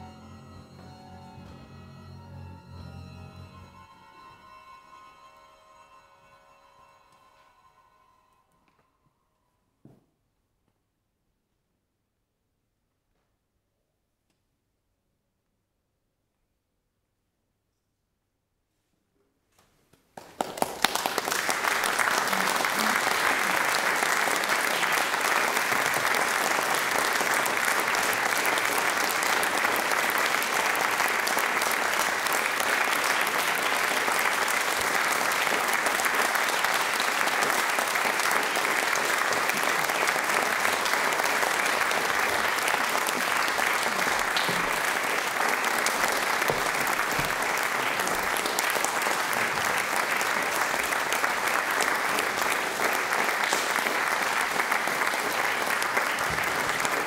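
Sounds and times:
audience applauding: 0:20.2 - 0:57.0.

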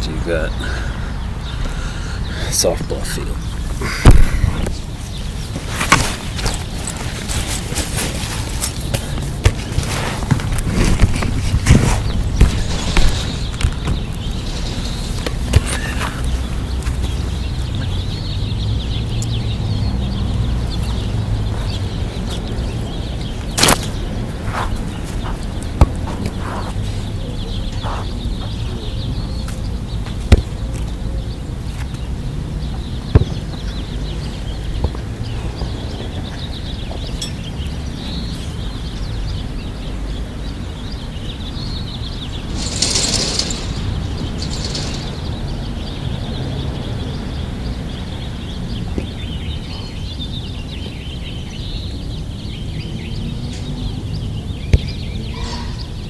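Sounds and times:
faint bird chirping: 0:12.0 - 0:25.8, 0:26.4 - 0:56.0
hissing rustle: 0:42.4 - 0:45.5.

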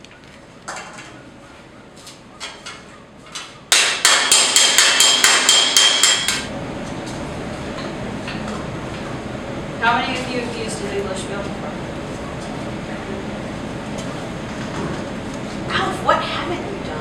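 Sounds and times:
hammer striking sheet metal: 0:03.7 - 0:06.5.

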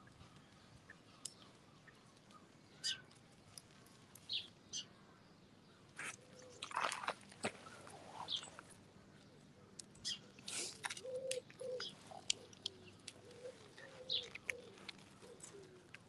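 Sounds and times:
birds chirping: 0:00.0 - 0:07.0, 0:07.7 - 0:16.0.

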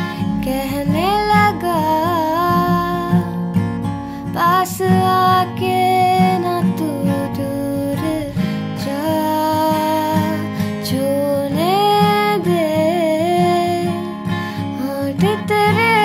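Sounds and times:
woman singing: 0:00.0 - 0:03.6, 0:04.2 - 0:16.0
strummed acoustic guitar: 0:00.0 - 0:16.0.

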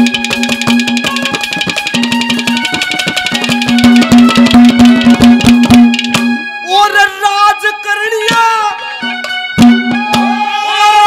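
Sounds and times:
fast hand-drum strokes: 0:00.0 - 0:06.4
instrumental folk melody: 0:00.0 - 0:10.8.

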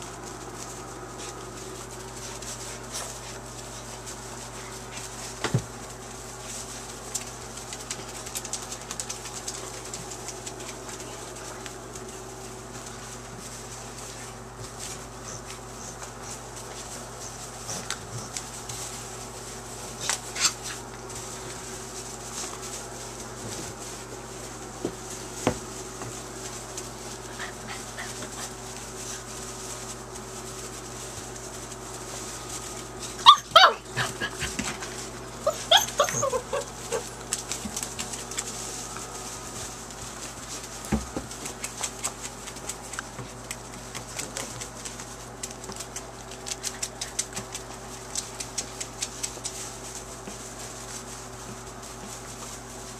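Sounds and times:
scuffles in wood shavings: 0:00.0 - 0:52.9
steady low hum: 0:00.0 - 0:52.9
puppies yipping and barking: 0:33.1 - 0:34.6, 0:35.4 - 0:37.2.

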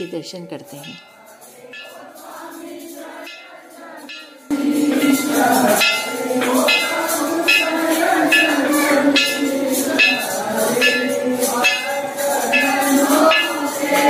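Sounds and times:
bells struck rhythmically: 0:00.0 - 0:14.0
cymbals struck rhythmically: 0:00.0 - 0:14.0
devotees singing together: 0:00.9 - 0:14.0.

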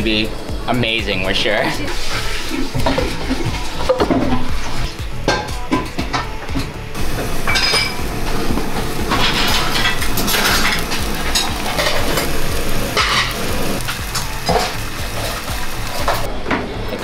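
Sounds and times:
stew sizzling and bubbling: 0:00.0 - 0:05.7, 0:06.9 - 0:17.0
pottery lids clinking and scraping: 0:07.4 - 0:08.0, 0:12.9 - 0:13.5.

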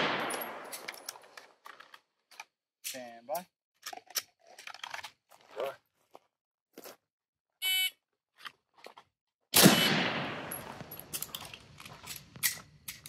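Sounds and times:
handgun shot with echo: 0:00.0 - 0:00.9, 0:09.6 - 0:10.9
shot timer beep: 0:07.6 - 0:07.9.

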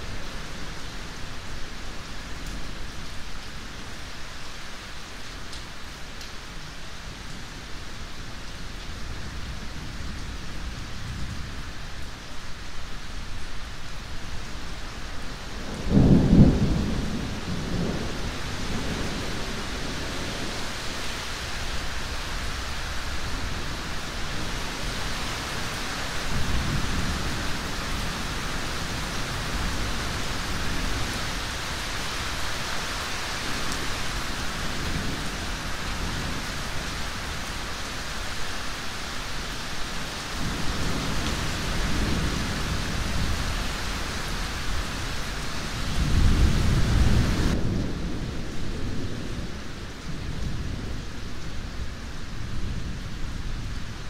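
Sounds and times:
steady rain: 0:00.0 - 0:54.0
thunder rumbling: 0:15.6 - 0:20.5, 0:45.7 - 0:51.2.

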